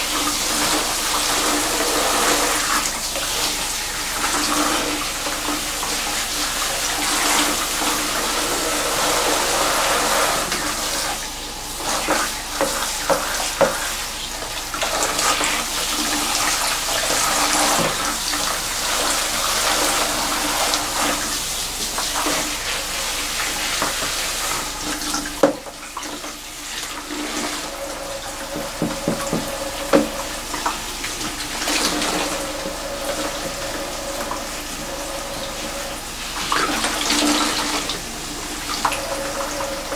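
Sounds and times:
shower head spraying water: 0:00.0 - 0:39.9.

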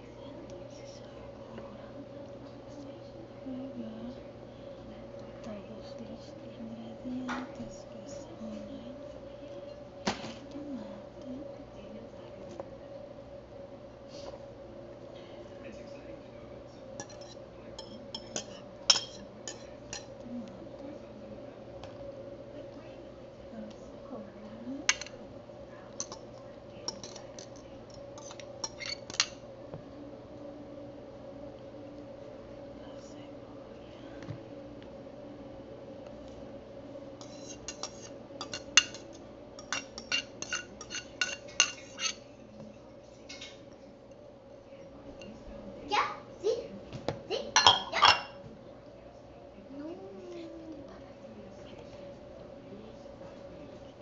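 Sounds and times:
metal utensil clinking against bowls: 0:17.0 - 0:20.1, 0:24.9 - 0:25.2, 0:26.0 - 0:26.3, 0:26.9 - 0:29.4, 0:37.2 - 0:42.2, 0:47.6 - 0:48.4.

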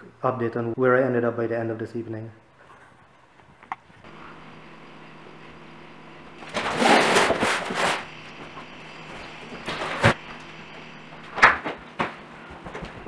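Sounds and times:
steady low hum: 0:00.0 - 0:13.0
cardboard boxes scraping on floor: 0:06.4 - 0:08.1.

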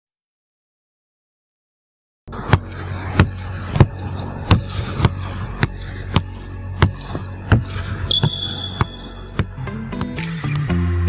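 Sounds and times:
steady low hum: 0:02.3 - 0:10.6
sharp thumps: 0:02.4 - 0:10.2.

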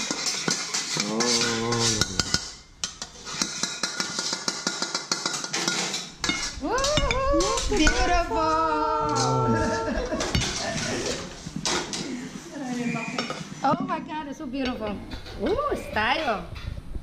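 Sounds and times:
metal spatula scraping wok: 0:00.0 - 0:08.4, 0:09.0 - 0:13.9
voices: 0:06.6 - 0:11.4, 0:12.0 - 0:16.5.

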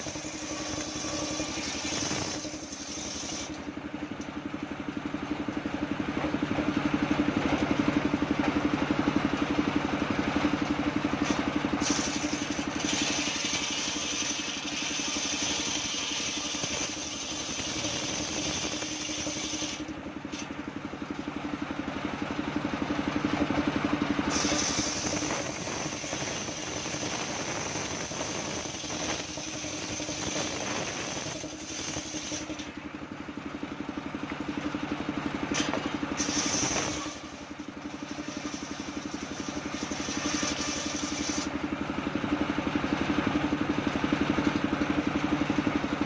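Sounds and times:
saw blade cutting wood: 0:00.0 - 0:03.7, 0:11.1 - 0:20.6, 0:24.3 - 0:32.7, 0:35.5 - 0:41.6
saw engine running: 0:00.0 - 0:46.0.

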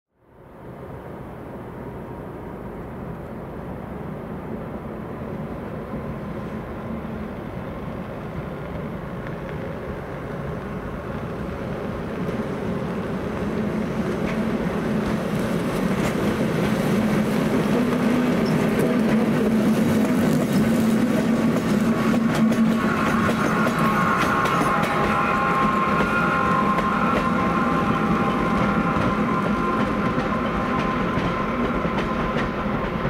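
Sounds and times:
electric locomotives passing: 0:00.2 - 0:33.0.

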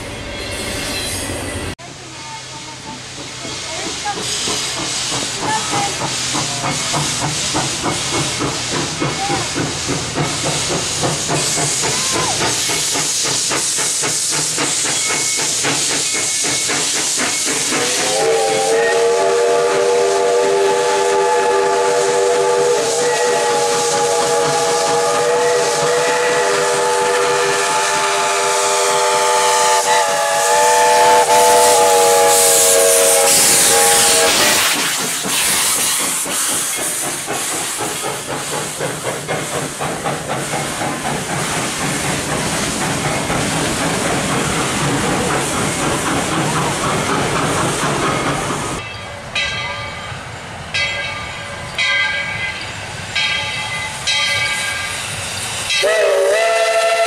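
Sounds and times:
steam hissing: 0:00.0 - 0:48.9, 0:51.2 - 0:57.0
rhythmic steam chuffs: 0:00.0 - 0:57.0
chime steam whistle: 0:14.8 - 0:37.0, 0:50.8 - 0:57.0.

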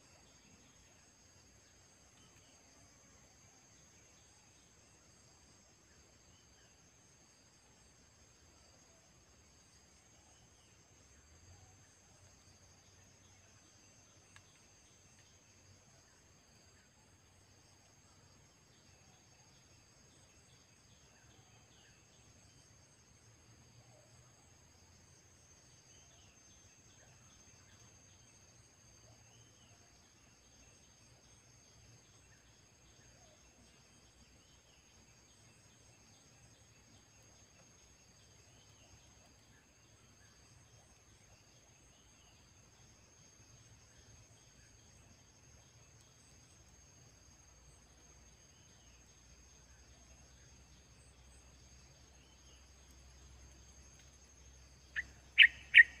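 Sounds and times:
high insect drone: 0:00.0 - 0:56.0
faint bird chirps: 0:48.5 - 0:56.0.

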